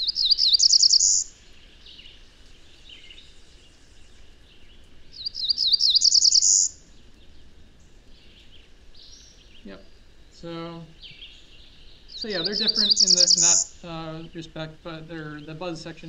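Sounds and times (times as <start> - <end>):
bird singing buzzy song: 0.0 - 16.0
faint bird notes: 0.0 - 16.0
faint recording hiss: 0.0 - 16.0.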